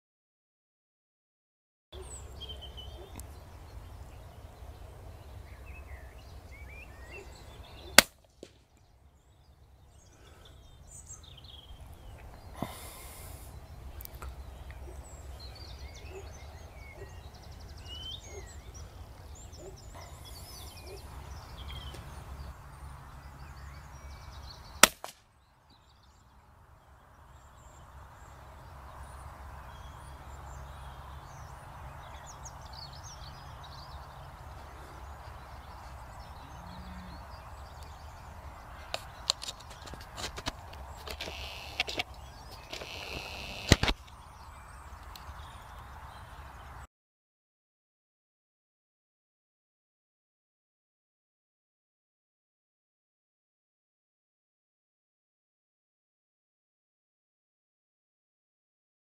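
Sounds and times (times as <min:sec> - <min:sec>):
small birds chirping: 0:02.0 - 0:46.9
rifle shots: 0:24.8 - 0:25.2.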